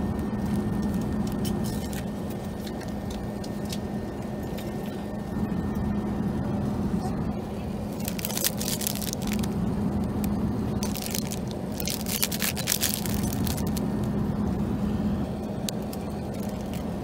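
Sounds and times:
airplane cabin drone: 0.0 - 17.0
plastic wrapper crinkling: 7.9 - 9.5, 10.8 - 13.9, 15.9 - 16.9.

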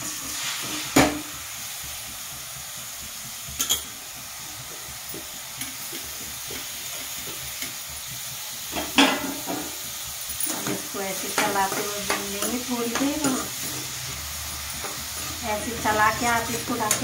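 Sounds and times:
vegetable sizzling in hot fat: 0.0 - 17.0
metal clank against pan: 3.6 - 4.0, 8.7 - 9.8.

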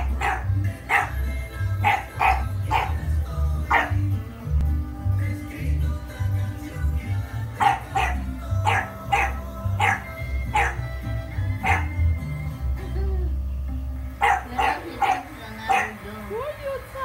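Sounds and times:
puppy barking in high yaps: 0.0 - 1.2, 1.8 - 3.0, 3.7 - 4.0, 7.6 - 10.9, 11.6 - 12.0, 14.2 - 16.0
background music with steady beat: 0.0 - 17.0.

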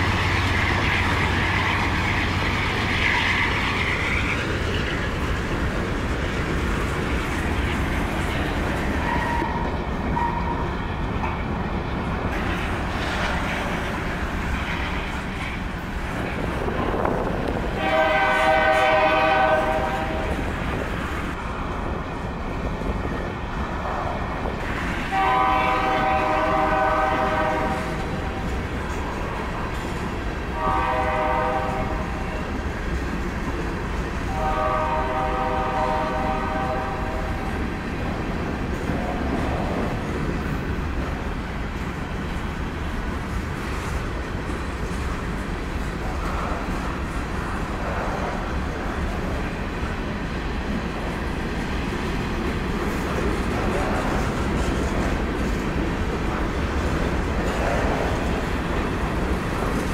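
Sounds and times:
locomotive air horn blasts: 17.8 - 20.3, 25.0 - 28.0, 30.6 - 32.0, 34.3 - 37.4
freight cars rumbling and clacking: 37.7 - 59.9.

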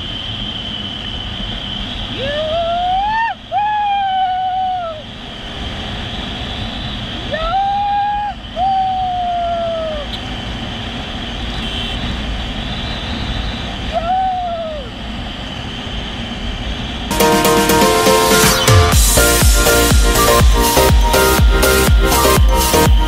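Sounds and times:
motorcycle road noise: 0.0 - 17.1
long hooting tones: 17.1 - 23.0
music: 17.1 - 23.0.

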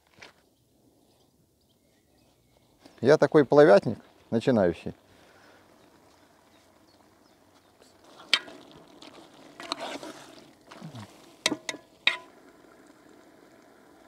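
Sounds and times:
scraping rustle: 8.0 - 11.2.

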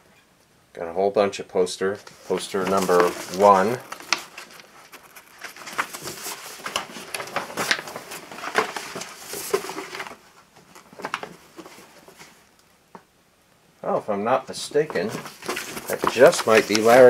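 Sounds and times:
paper posters rustling: 1.8 - 12.5, 14.6 - 17.0.

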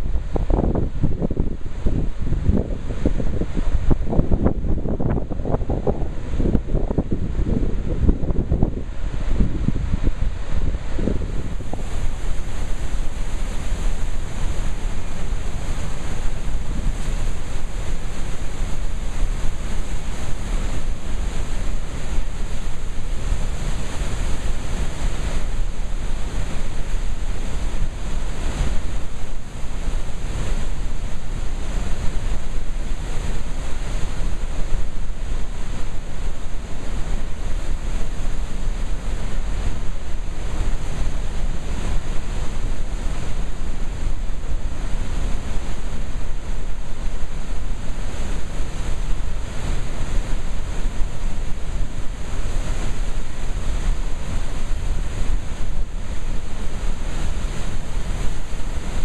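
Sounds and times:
rushing churning water: 0.0 - 59.0.

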